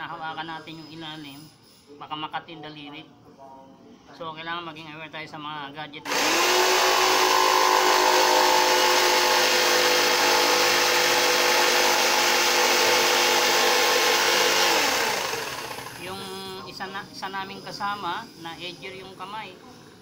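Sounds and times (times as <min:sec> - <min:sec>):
power tool motor whining: 0:06.1 - 0:16.4.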